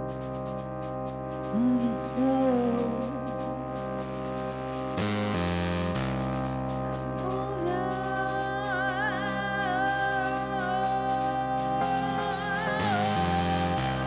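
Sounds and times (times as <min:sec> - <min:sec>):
electronic backing track: 0:00.0 - 0:14.0
woman singing into a microphone: 0:01.5 - 0:03.7, 0:07.1 - 0:14.0.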